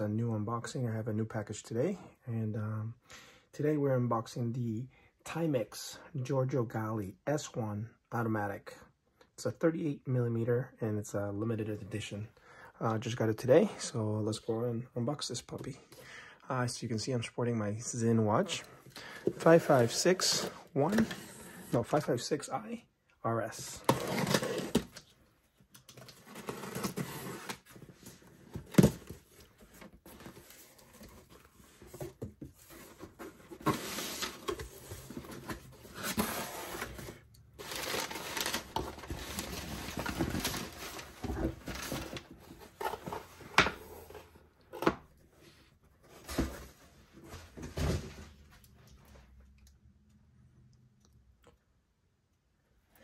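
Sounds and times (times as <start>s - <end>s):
packing paper rustling: 25.8s - 43.4s.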